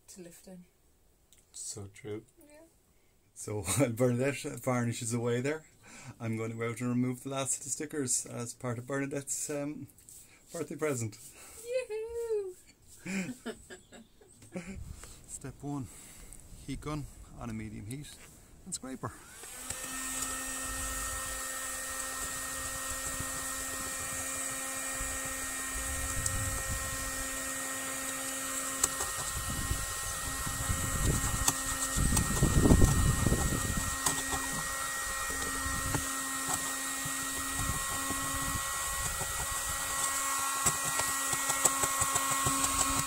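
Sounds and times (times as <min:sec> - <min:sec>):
heat gun whine and airflow: 0:19.1 - 0:43.0
scraper clicking and scraping: 0:19.4 - 0:43.0.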